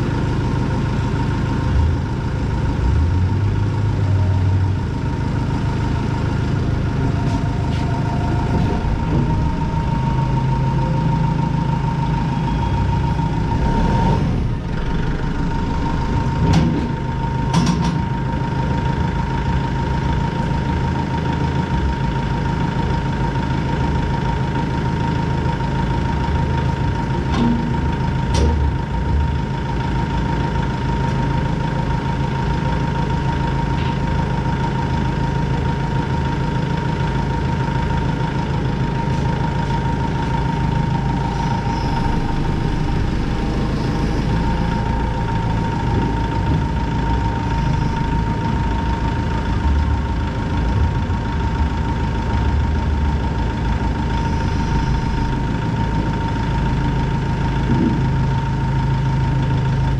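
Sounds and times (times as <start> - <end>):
tractor diesel engine idling: 0.0 - 59.9
thin high whine: 40.2 - 46.3.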